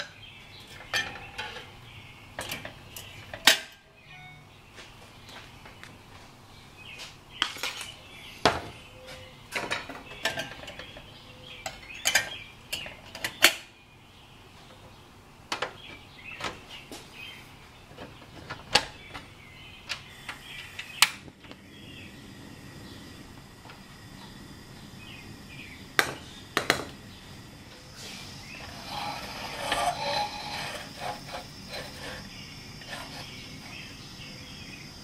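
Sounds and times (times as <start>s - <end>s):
camp stove clicks: 18.5s - 21.6s
gas burner: 19.8s - 35.0s.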